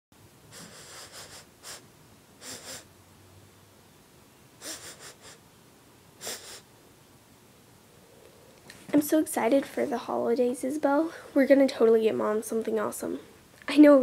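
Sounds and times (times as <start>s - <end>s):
short breathy puffs of air: 0.5s - 1.8s.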